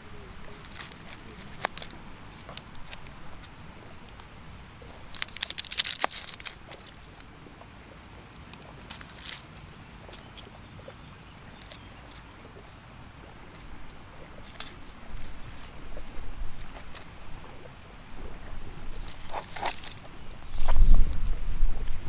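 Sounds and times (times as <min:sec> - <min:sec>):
steady hiss: 0:00.0 - 0:22.0
onion skin crackling and tearing: 0:00.3 - 0:04.3, 0:04.9 - 0:07.3, 0:08.4 - 0:10.5, 0:14.4 - 0:17.2, 0:18.8 - 0:22.0.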